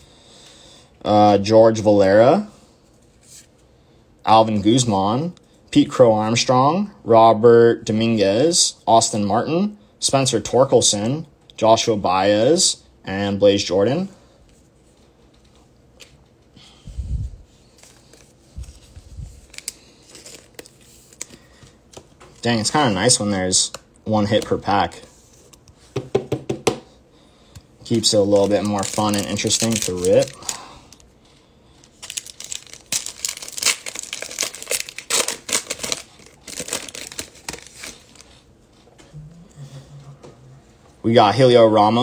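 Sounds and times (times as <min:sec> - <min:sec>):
foil wrapper crinkling and tearing: 0:19.4 - 0:21.4, 0:27.9 - 0:31.0, 0:31.8 - 0:38.4
card packs clicking and rustling: 0:19.4 - 0:22.6, 0:27.9 - 0:31.0, 0:31.8 - 0:38.3.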